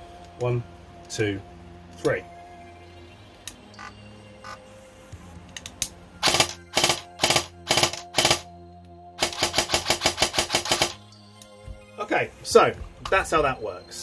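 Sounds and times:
airsoft gun firing bursts: 0:06.2 - 0:08.4, 0:09.2 - 0:11.0.

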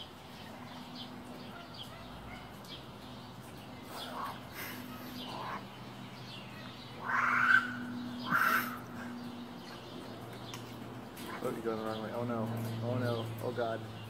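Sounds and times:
harsh animal calls: 0:03.9 - 0:05.7, 0:07.0 - 0:09.4.

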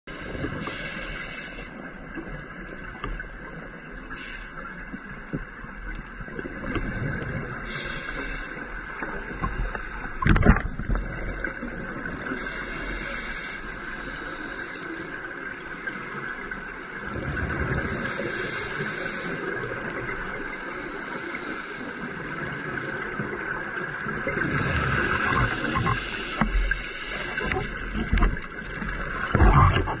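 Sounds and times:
regulator hiss on inhale: 0:00.1 - 0:01.9, 0:03.6 - 0:05.0, 0:07.6 - 0:10.2, 0:12.4 - 0:15.0, 0:18.0 - 0:19.6, 0:20.4 - 0:22.5, 0:24.6 - 0:27.9
bubbles gurgling: 0:17.0 - 0:18.1, 0:22.8 - 0:26.0, 0:27.4 - 0:30.0.

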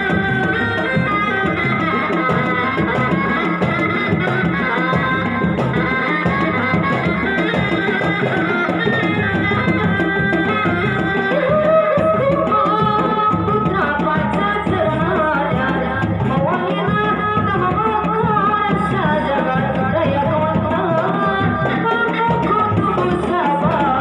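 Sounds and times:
wavering melody: 0:00.0 - 0:17.2
drums beaten with sticks: 0:00.0 - 0:24.0.

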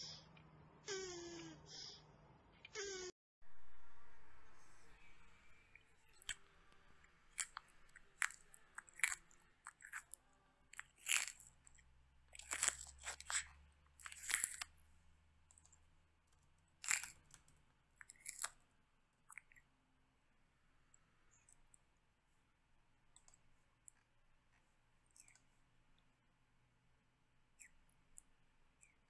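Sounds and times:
tortoise chewing crunchy vegetable: 0:07.1 - 0:14.8, 0:16.8 - 0:17.3, 0:18.0 - 0:18.6.

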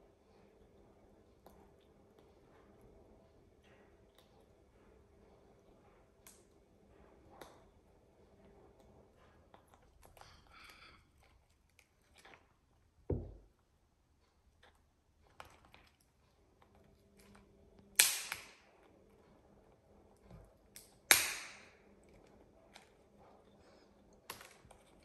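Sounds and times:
dull knock: 0:13.1 - 0:13.4.

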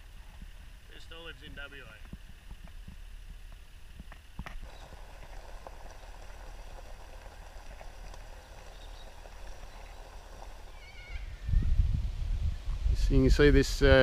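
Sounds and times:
tyres on gravel: 0:01.8 - 0:11.4.

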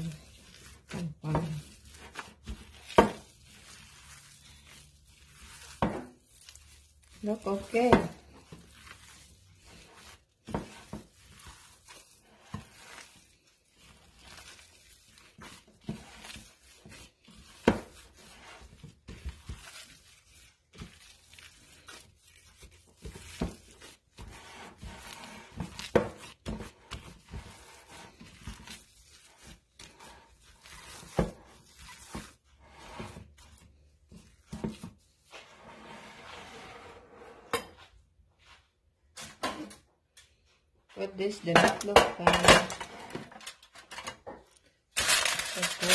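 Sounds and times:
wet squishing of ground meat: 0:00.0 - 0:35.5
plastic gloves crinkling: 0:00.0 - 0:35.6, 0:41.0 - 0:45.9.

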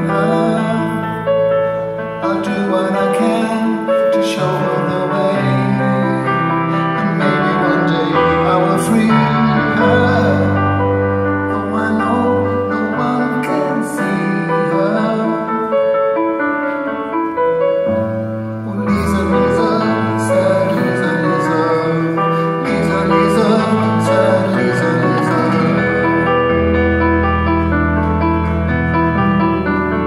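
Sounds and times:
person singing: 0:00.0 - 0:15.9, 0:18.5 - 0:26.7
piano chords: 0:00.0 - 0:30.0.

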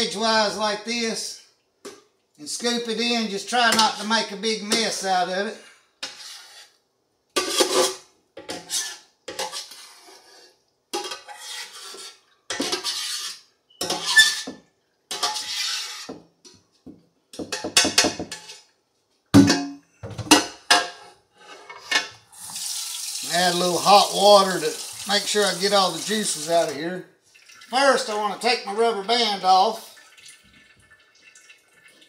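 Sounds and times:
spoon scraping and knocking pot: 0:03.7 - 0:05.0, 0:06.0 - 0:06.8, 0:07.4 - 0:16.3, 0:17.3 - 0:18.7.

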